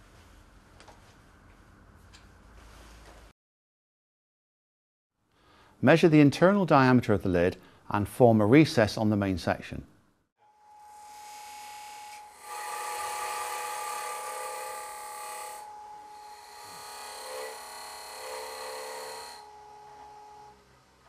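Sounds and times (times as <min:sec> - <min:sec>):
wood lathe whine: 0:10.4 - 0:20.7
cutter scraping wood: 0:11.1 - 0:20.4.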